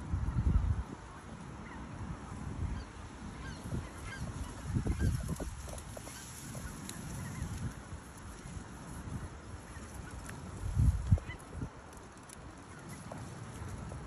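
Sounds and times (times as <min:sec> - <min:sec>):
wind gusting on microphone: 0:00.0 - 0:14.0
geese honking: 0:01.1 - 0:07.6.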